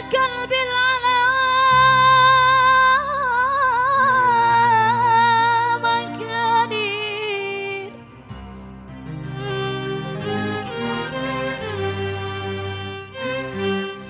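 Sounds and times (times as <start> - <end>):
woman singing into microphone: 0.0 - 8.0
low keyboard notes: 0.0 - 14.0.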